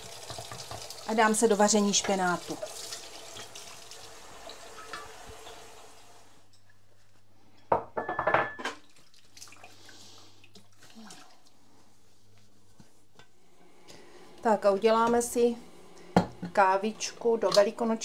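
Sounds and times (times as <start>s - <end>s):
dishes clattering in sink: 4.7s - 5.6s, 7.7s - 8.9s.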